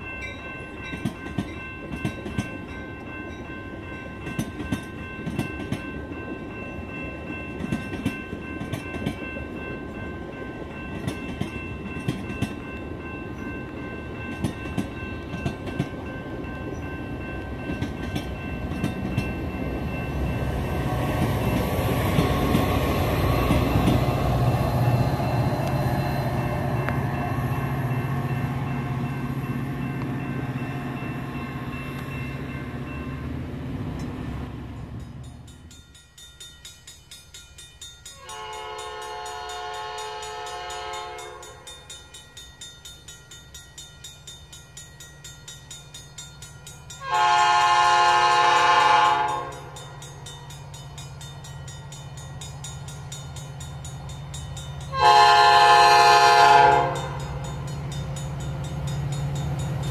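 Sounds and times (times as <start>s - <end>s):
diesel locomotive engine drone: 0.0s - 35.9s, 45.3s - 59.9s
train air horn blasts: 38.2s - 41.5s, 47.0s - 49.7s, 54.9s - 57.2s.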